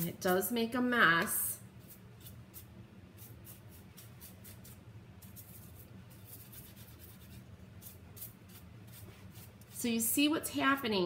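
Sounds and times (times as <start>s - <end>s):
brush scrubbing: 1.8s - 9.9s.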